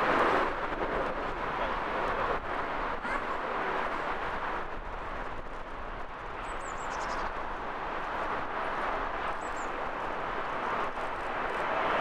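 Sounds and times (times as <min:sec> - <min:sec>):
jet engines roaring: 0:00.0 - 0:05.6.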